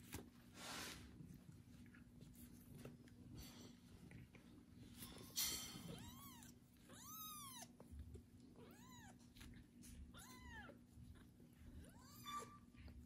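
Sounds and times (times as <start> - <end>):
kitten meowing: 5.9 - 7.7, 10.1 - 10.8.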